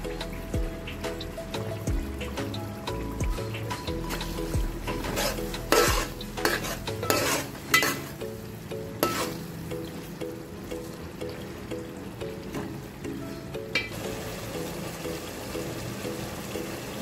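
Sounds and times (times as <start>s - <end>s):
sauce sizzling and bubbling: 0.0s - 17.0s
stirring strokes in pot: 3.3s - 8.4s, 9.0s - 9.6s.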